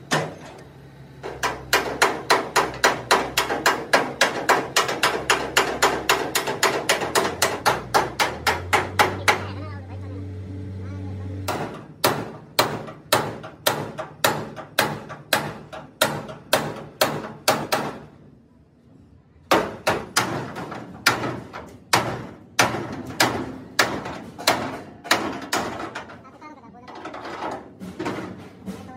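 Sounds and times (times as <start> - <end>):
hammer beating steel: 1.2 - 9.6, 11.4 - 18.2, 19.4 - 26.3.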